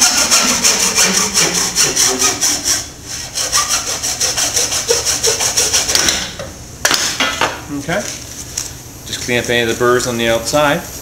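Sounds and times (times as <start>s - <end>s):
hacksaw cutting plastic pipe: 0.0s - 6.3s.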